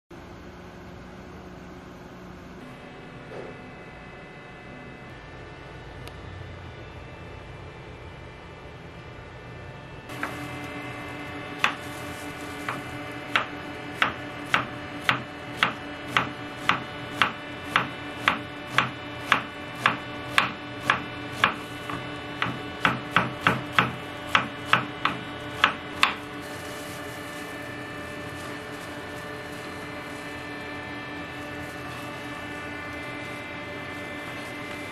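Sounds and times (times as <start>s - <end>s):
steady hum: 0.1s - 34.9s
knife slicing onion on board: 12.6s - 26.2s.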